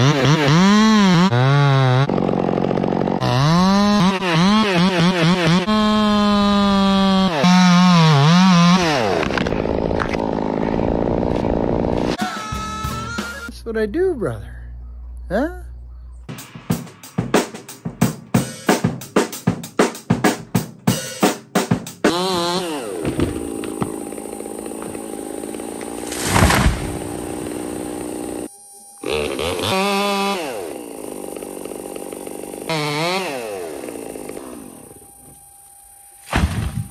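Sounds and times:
chainsaw revving: 0.0 - 12.2, 22.0 - 35.3
drum kit playing: 16.3 - 22.1.

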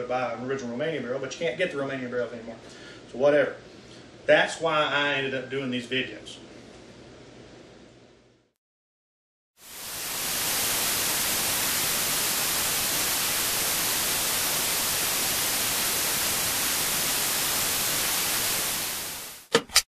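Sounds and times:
television static hiss: 9.7 - 19.5.

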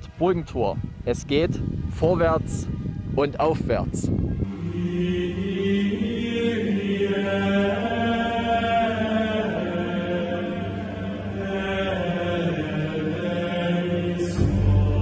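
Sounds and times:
chanted vocal music: 4.3 - 15.0
low drone: 4.3 - 15.0.

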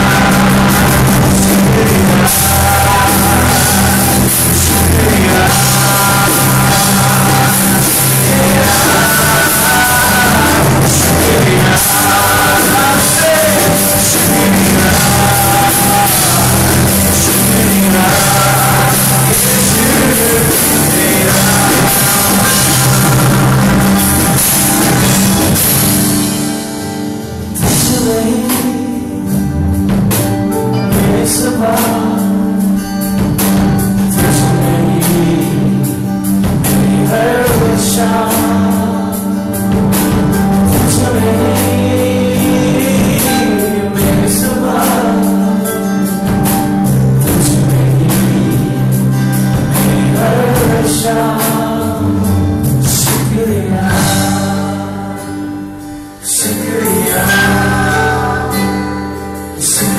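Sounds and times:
acoustic guitar: 0.0 - 59.9
drum kit: 0.0 - 59.9
electric bass: 0.0 - 59.9
keyboard: 0.0 - 59.9
man singing: 0.0 - 59.9.

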